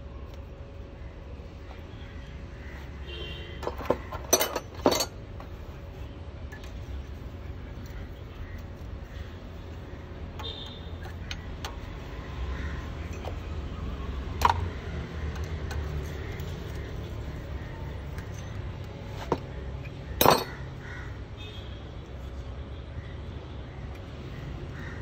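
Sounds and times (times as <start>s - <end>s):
hand tools clinking on metal: 3.6s - 5.2s, 20.2s - 20.6s.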